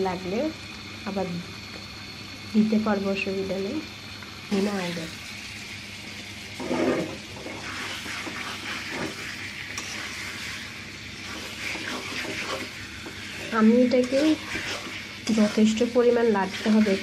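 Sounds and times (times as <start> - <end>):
chicken sizzling in oil: 0.0 - 17.0
metal spatula scraping pan: 6.6 - 10.6, 11.2 - 17.0.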